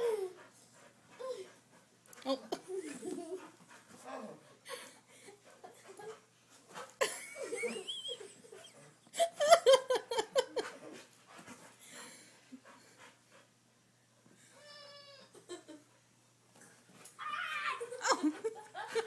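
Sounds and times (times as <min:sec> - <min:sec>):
dog panting: 0:00.0 - 0:07.1, 0:10.4 - 0:13.7.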